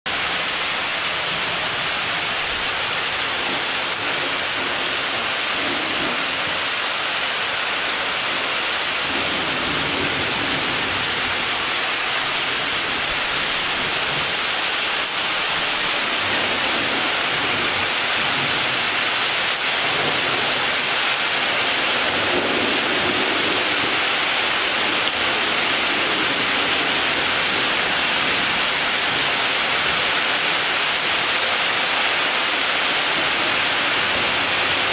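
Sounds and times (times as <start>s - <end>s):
rain falling: 0.1s - 34.9s
low rolling thunder: 3.2s - 6.7s, 9.0s - 11.7s, 16.1s - 18.9s, 21.8s - 24.0s.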